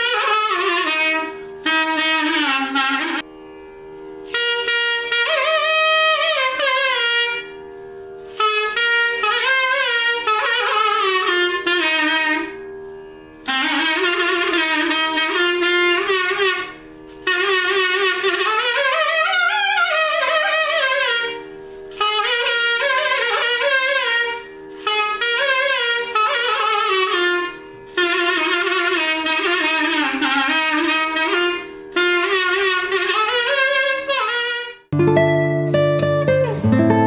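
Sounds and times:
reed wind instrument melody: 0.0s - 37.0s
strummed acoustic guitar music: 34.9s - 37.0s.

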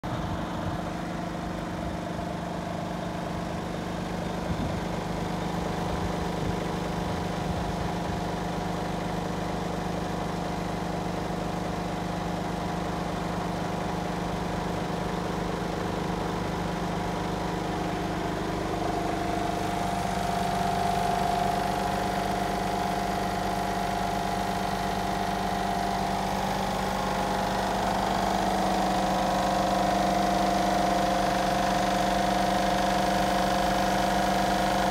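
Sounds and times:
diesel truck engine idling: 0.0s - 34.9s.

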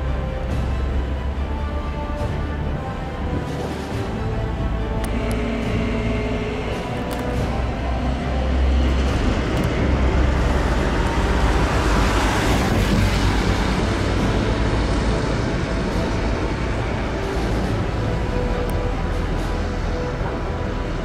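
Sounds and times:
diesel locomotive engine rumbling: 0.0s - 21.0s.

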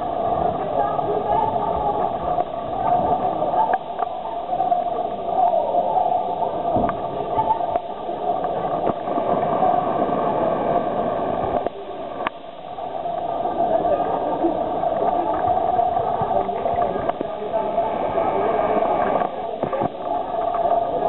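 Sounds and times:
murmur of many voices: 0.0s - 21.0s.

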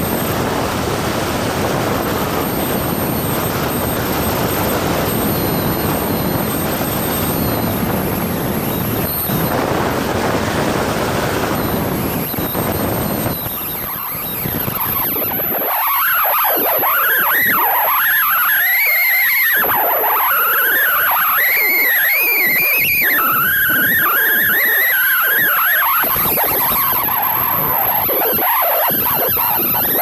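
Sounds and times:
light aircraft engine: 0.0s - 30.0s.

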